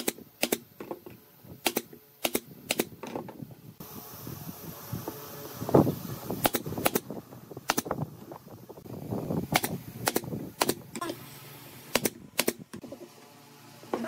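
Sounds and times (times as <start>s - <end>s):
nail gun firing: 0.0s - 0.7s, 1.6s - 3.0s, 6.4s - 7.9s, 9.5s - 10.8s, 11.9s - 12.6s.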